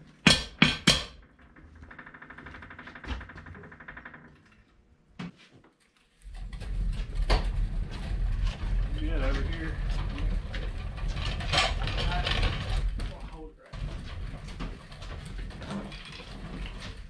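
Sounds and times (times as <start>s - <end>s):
sharp knocks: 0.2s - 3.8s.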